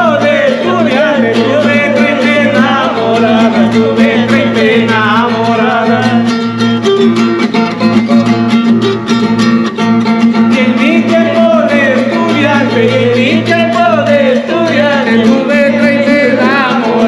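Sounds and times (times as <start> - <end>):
man singing: 0.0 - 6.7, 10.4 - 17.0
classical guitar strumming: 0.0 - 17.0.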